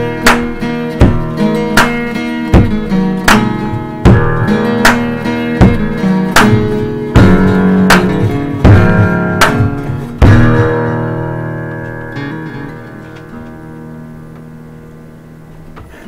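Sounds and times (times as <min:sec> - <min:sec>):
sharp accented beat: 0:00.0 - 0:12.6
acoustic guitar strumming song: 0:00.0 - 0:16.0.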